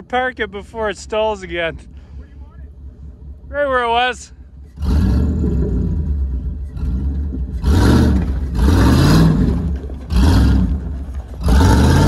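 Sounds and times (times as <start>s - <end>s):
pickup truck engine revving: 4.7s - 12.0s.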